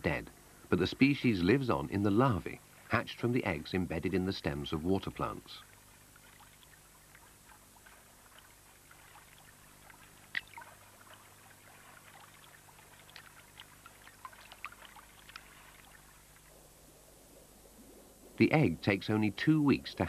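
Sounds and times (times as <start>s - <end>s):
soft water lapping: 0.0s - 20.0s
small water drips and splashes: 5.2s - 16.6s.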